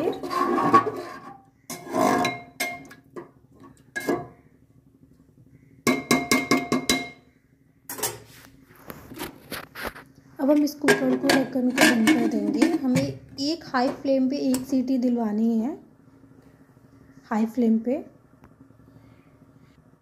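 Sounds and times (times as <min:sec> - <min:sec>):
spatula scraping curry in pot: 0:00.0 - 0:02.5
spatula knocking metal pot: 0:05.8 - 0:07.2, 0:10.5 - 0:13.2.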